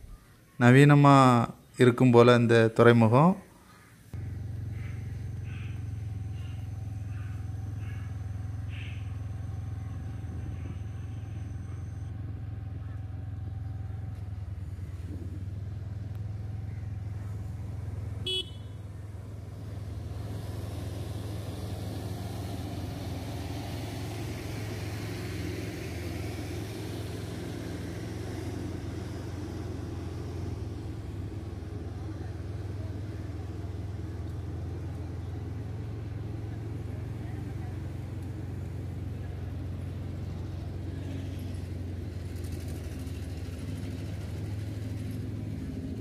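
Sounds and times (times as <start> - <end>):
vehicle engine humming: 0.0 - 46.0
horn toot: 18.2 - 18.8.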